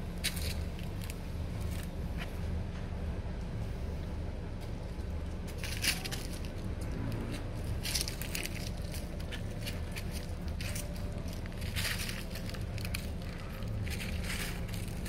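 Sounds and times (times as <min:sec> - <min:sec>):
footsteps on dry leaves: 0:00.0 - 0:02.3, 0:04.8 - 0:15.0
low rumble: 0:00.0 - 0:15.0.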